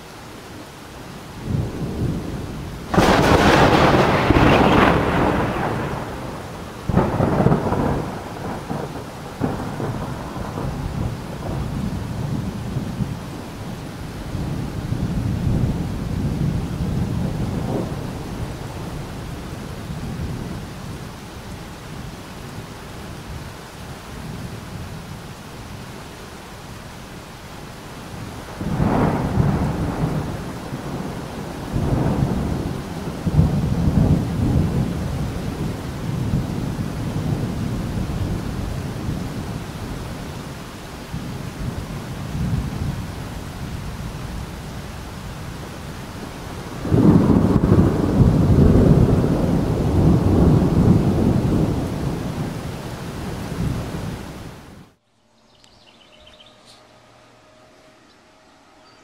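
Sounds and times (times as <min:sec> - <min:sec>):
rain hissing: 0:00.0 - 0:55.0
thunder rolling: 0:01.4 - 0:20.7, 0:28.2 - 0:40.3, 0:41.1 - 0:55.0.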